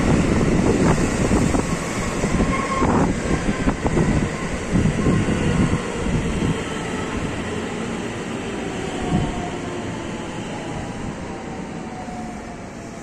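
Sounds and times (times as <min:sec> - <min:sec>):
high squeal: 0:02.4 - 0:03.1.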